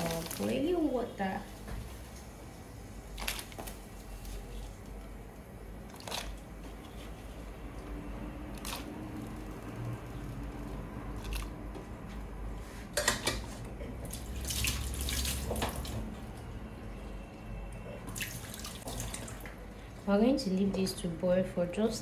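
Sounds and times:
water splashing in a pot: 0.0s - 0.9s, 5.8s - 6.5s, 14.0s - 16.4s, 18.0s - 19.6s.

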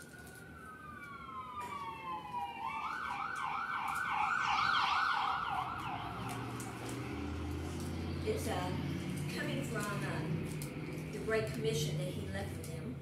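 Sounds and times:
emergency siren wailing and yelping: 0.0s - 9.0s.

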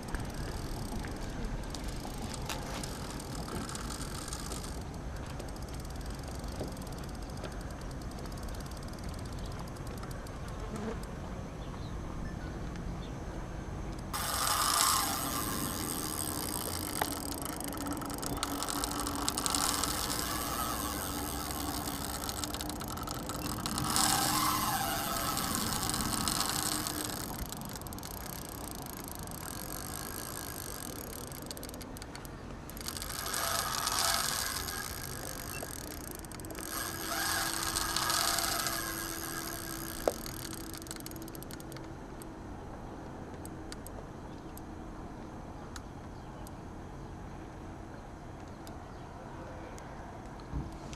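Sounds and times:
fishing reel spinning: 0.0s - 10.6s, 14.2s - 41.9s
steady low hum: 0.0s - 50.9s.

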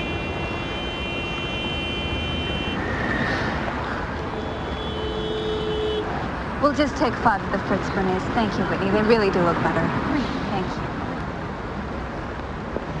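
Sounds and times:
car horn blasts: 0.0s - 2.9s, 4.2s - 6.2s
city street traffic: 0.0s - 13.0s.

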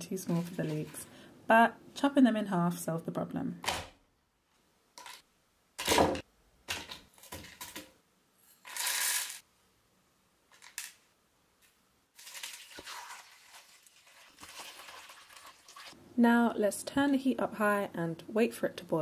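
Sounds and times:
water pouring into a pan: 12.2s - 16.0s.

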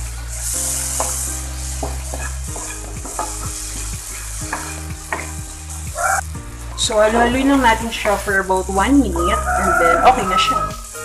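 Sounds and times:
okra sizzling: 0.0s - 11.0s
spatula scraping a wok: 1.0s - 5.3s, 7.0s - 8.5s
spatula knocking against pan: 4.4s - 5.4s.

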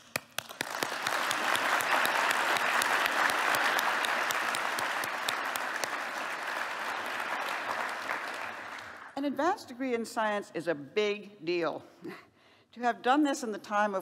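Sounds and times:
large audience applauding: 0.2s - 9.2s.

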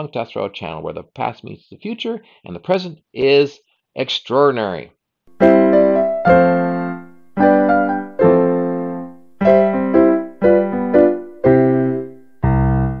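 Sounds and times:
slow piano chords: 5.3s - 13.0s.

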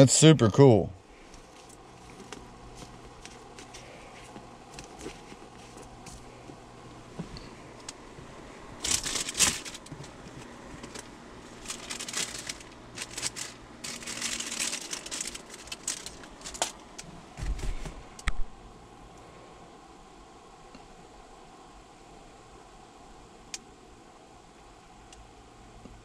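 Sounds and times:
paper and plastic crinkling: 1.4s - 6.3s, 8.8s - 18.0s.

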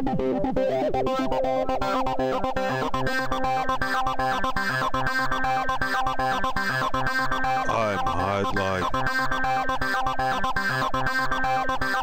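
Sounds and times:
synthesizer music: 7.6s - 9.1s.

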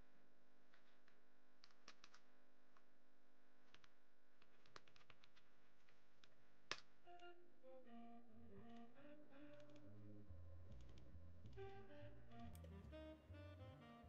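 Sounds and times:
faint pitched notes: 7.0s - 14.0s.

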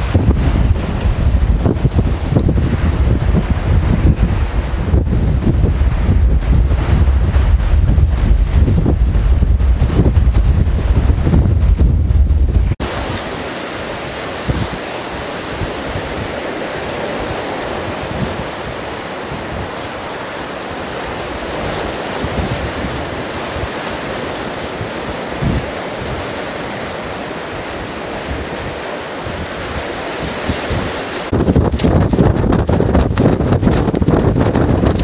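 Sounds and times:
strong wind: 0.0s - 35.0s
surf breaking against rocks: 0.0s - 35.0s
wind buffeting microphone: 0.0s - 35.0s
low thumps: 0.1s - 12.8s.

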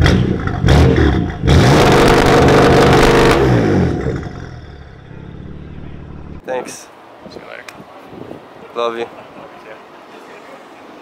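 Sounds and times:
car engine revving: 0.0s - 6.4s.

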